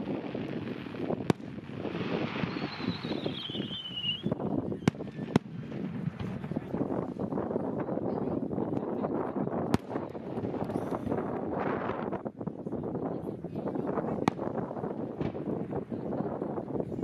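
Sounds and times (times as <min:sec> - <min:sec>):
fireworks bangs: 0:00.0 - 0:07.4, 0:09.6 - 0:11.3, 0:14.0 - 0:16.1
wind: 0:00.0 - 0:17.0
fireworks pops: 0:01.0 - 0:06.9, 0:09.6 - 0:11.2, 0:14.2 - 0:15.5
falling whistle: 0:02.4 - 0:04.4
crowd murmur: 0:03.8 - 0:17.0.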